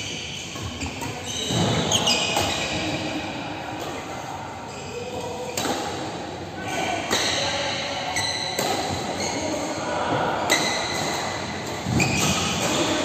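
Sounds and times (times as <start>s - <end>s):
shoes squeaking on court: 0.0s - 3.2s, 8.1s - 9.7s, 10.5s - 13.0s
racket hitting shuttlecock: 0.6s - 2.9s, 5.2s - 6.2s, 7.0s - 9.7s, 10.4s - 13.0s.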